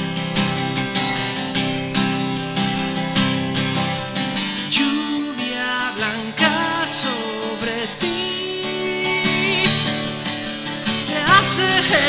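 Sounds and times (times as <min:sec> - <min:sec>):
strummed acoustic guitar: 0:00.0 - 0:12.0
man's wordless singing: 0:04.7 - 0:10.1, 0:11.0 - 0:12.0.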